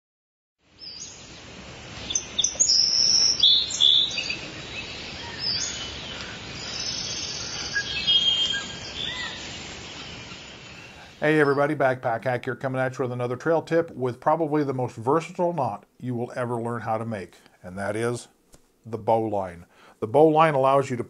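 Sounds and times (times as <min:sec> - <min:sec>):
faint steady hiss: 0:00.6 - 0:21.0
songbirds singing: 0:00.7 - 0:12.0.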